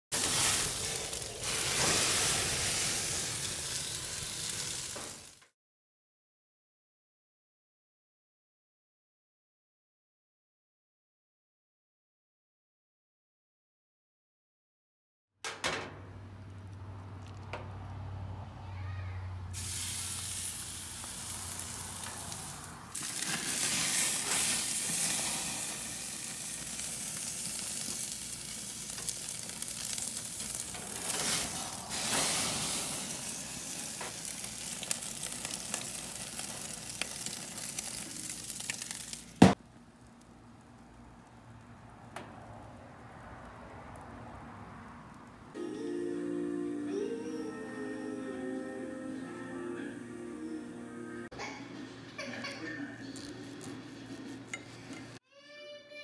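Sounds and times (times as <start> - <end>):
steak sizzling on a grill: 0.2 - 5.4, 19.6 - 39.6
sharp clunk: 15.4 - 16.1.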